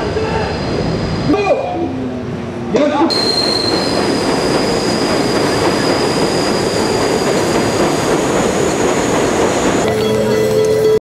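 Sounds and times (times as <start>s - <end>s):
subway train passing: 0.0s - 11.0s
high-pitched wheel squeal: 3.1s - 7.2s.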